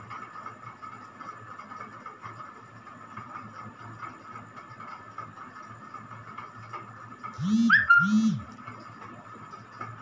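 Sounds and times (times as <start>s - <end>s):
rising and falling animal call: 7.4s - 8.4s
faint high steady tone: 7.4s - 8.5s
steady low hum: 7.4s - 8.6s.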